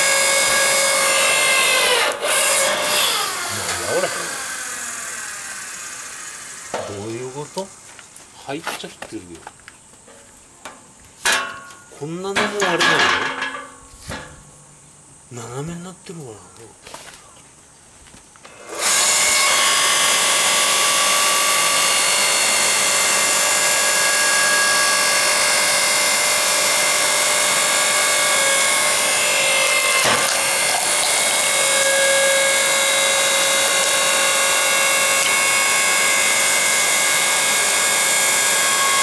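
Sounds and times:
log splitter whine: 0:00.0 - 0:08.0, 0:18.4 - 0:39.0.

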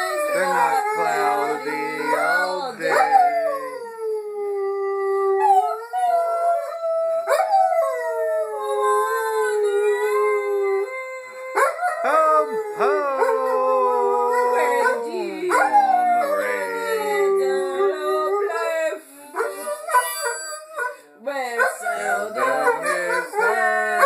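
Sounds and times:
person singing: 0:00.0 - 0:03.8, 0:12.0 - 0:19.8, 0:21.8 - 0:24.0
dog howling: 0:00.0 - 0:21.0, 0:21.6 - 0:24.0
dog yipping: 0:19.4 - 0:21.0.

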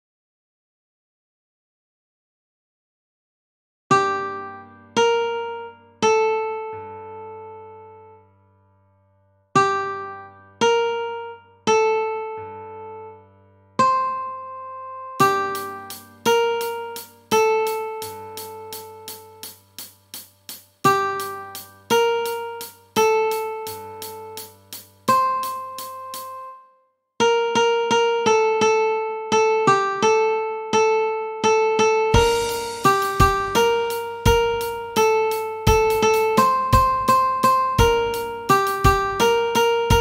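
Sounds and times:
plucked ukulele notes: 0:15.2 - 0:26.6, 0:31.6 - 0:40.0
plucked ukulele note: 0:32.2 - 0:40.0.

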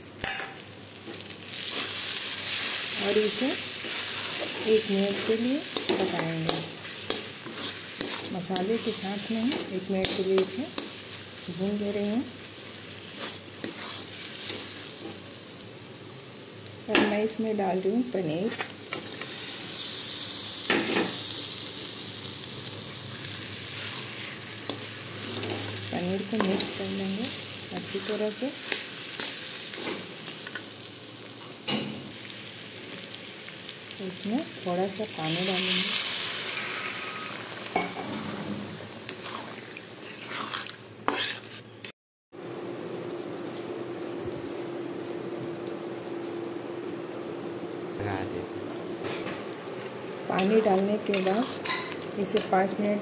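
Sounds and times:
masala sizzling in a wok: 0:00.0 - 0:53.0
metal spatula scraping a pan: 0:01.6 - 0:11.0, 0:13.1 - 0:14.7, 0:36.5 - 0:41.9, 0:51.1 - 0:52.5.

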